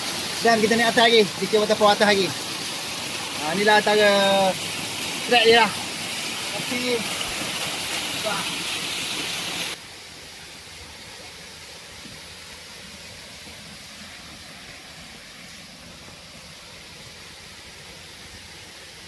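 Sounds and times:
quiet rushing hiss of water: 0.0 - 19.0
water rushing down spillway: 0.0 - 19.0.

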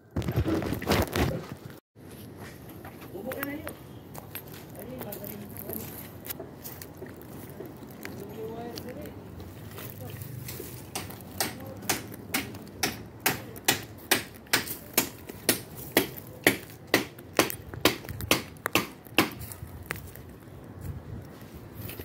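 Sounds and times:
sharp footsteps: 0.0 - 22.0.

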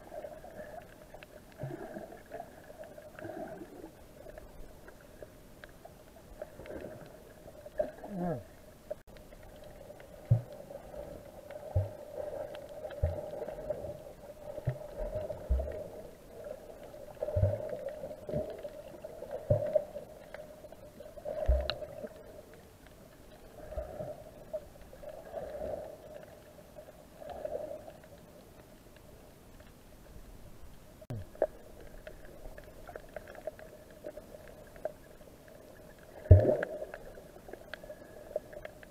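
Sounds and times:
dull low underwater thumps: 10.2 - 10.5.

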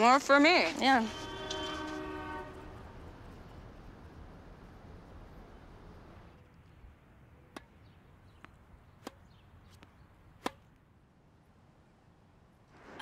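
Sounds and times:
tennis ball being hit: 7.4 - 10.8.

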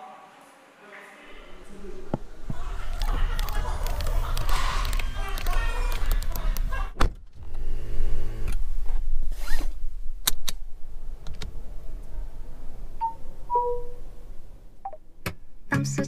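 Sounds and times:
electric window motor humming: 7.4 - 8.6
short electronic beeps: 13.0 - 14.0.

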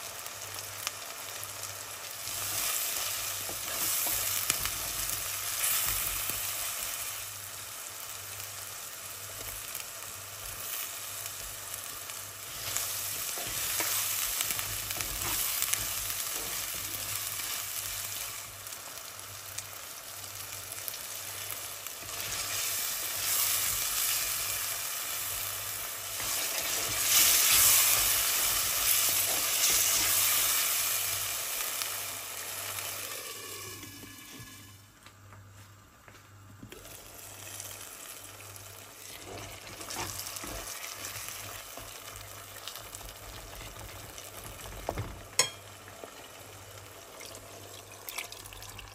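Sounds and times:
onions sizzling in oil: 0.0 - 34.9, 36.7 - 48.9
water pouring: 47.2 - 48.9.

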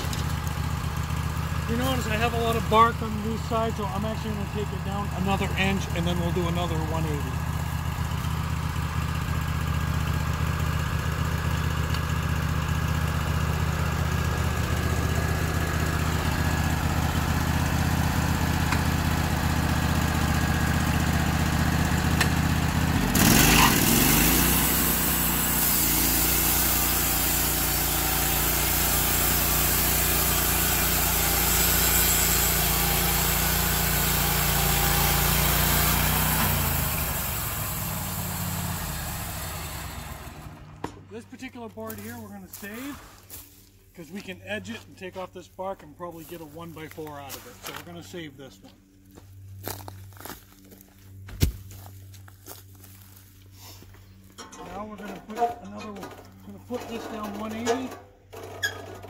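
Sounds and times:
engine idling and revving: 0.0 - 42.8
band blade cutting log: 23.0 - 37.5.

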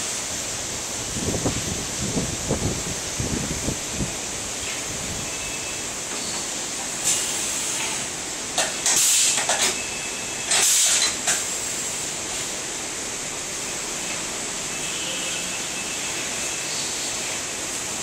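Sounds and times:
steady high hiss: 0.0 - 18.0
short bursts of air hiss: 7.0 - 8.1, 8.8 - 9.5, 10.5 - 12.6.

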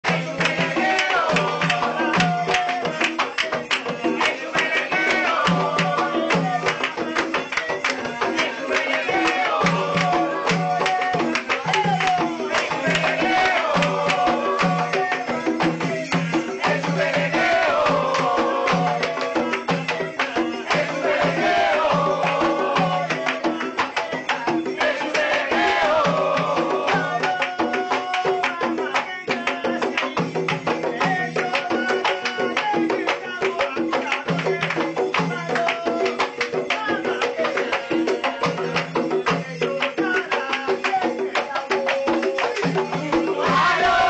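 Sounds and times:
hand drums playing a rhythm: 0.0 - 44.0
bells jingling: 0.1 - 44.0.

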